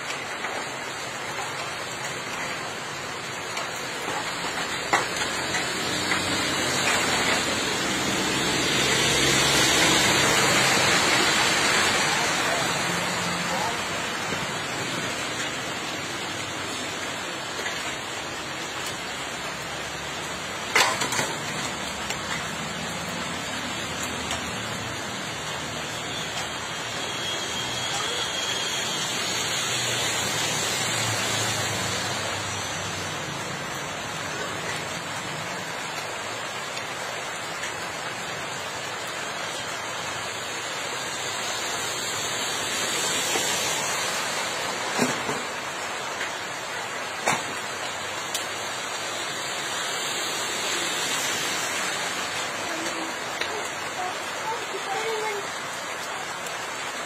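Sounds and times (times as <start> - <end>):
rushing runoff water: 0.0 - 57.0
steady rain: 0.0 - 57.0.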